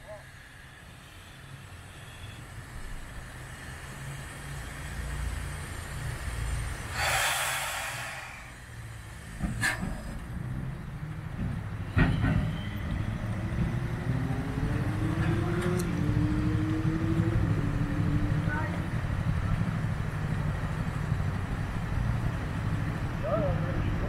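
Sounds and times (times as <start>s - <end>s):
steam locomotive rumbling: 5.6s - 24.0s
steam hiss: 6.4s - 10.2s.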